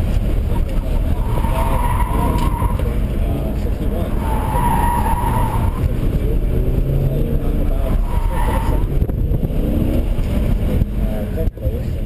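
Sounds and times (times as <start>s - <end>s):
car engine accelerating hard: 0.0s - 12.0s
tyres squealing: 0.6s - 3.1s, 3.7s - 6.0s, 7.7s - 9.0s.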